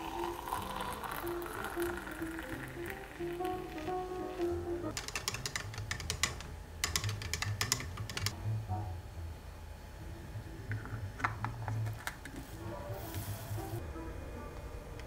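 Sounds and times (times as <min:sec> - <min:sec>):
stirrer clicking against plastic: 0:04.9 - 0:08.4.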